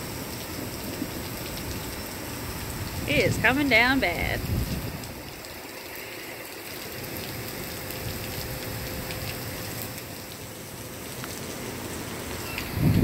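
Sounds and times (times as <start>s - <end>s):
heavy rain on pavement: 0.0s - 13.0s
single raindrops ticking: 4.4s - 13.0s.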